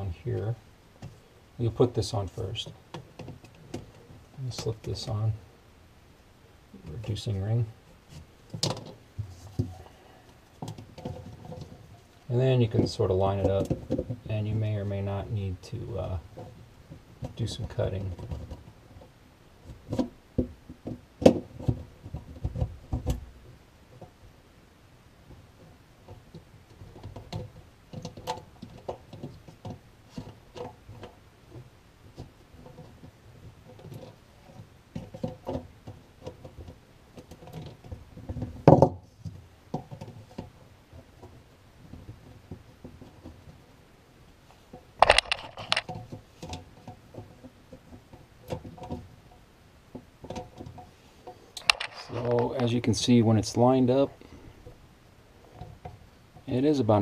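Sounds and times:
plastic pipe parts clicking: 44.7s - 49.1s, 49.9s - 52.7s.

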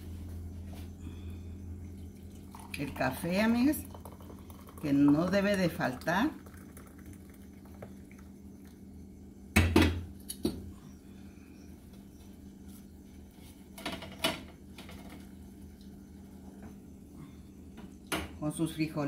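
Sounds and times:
low steady hum: 0.0s - 19.0s
coffee pot clunk on stovetop: 9.6s - 10.6s.

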